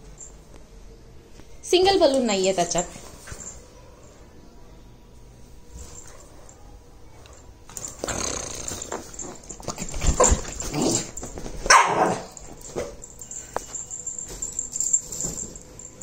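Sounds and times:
dog growling and barking: 7.8s - 12.4s.

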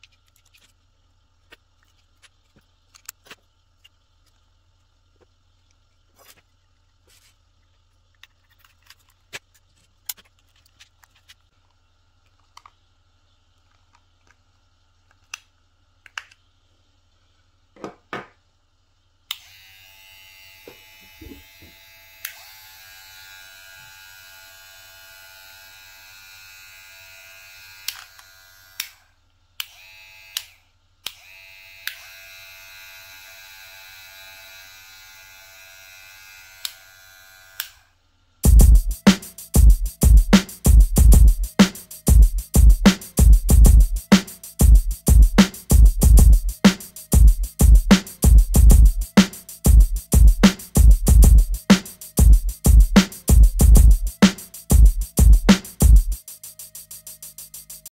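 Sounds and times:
hair clipper buzzing: 19.3s - 57.8s.

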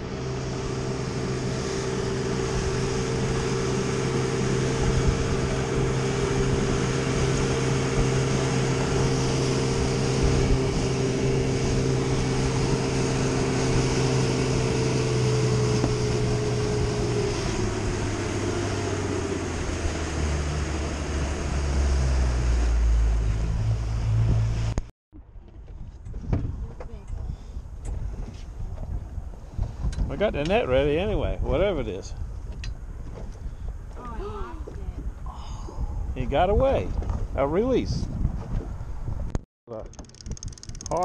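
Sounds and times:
water rushing: 0.0s - 24.8s
boat engine running: 0.0s - 41.0s.

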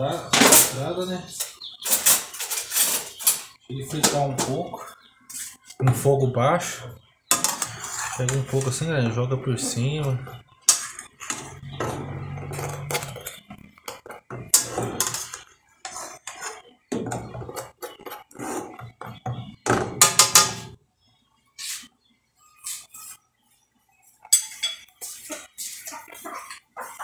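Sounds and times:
utensil scraping a frying pan: 1.8s - 3.5s, 7.3s - 19.0s, 24.3s - 27.0s.

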